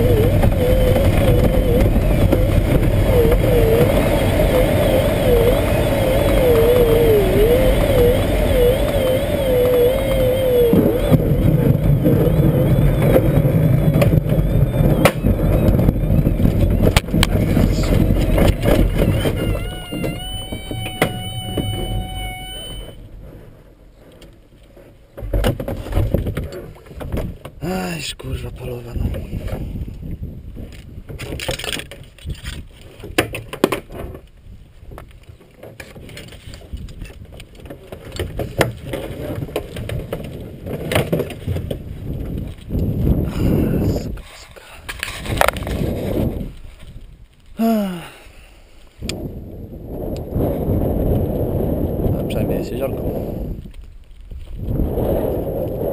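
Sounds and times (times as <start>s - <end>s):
glider wheel rumbling over ground: 0.0s - 44.3s, 45.0s - 47.7s, 48.8s - 55.9s
cockpit handling clicks and rustling: 30.7s - 34.3s, 35.0s - 42.8s.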